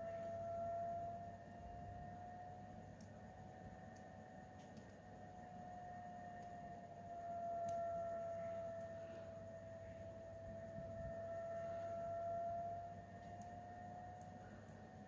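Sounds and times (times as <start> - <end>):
faint whistling tone: 0.0 - 2.6, 7.1 - 14.9.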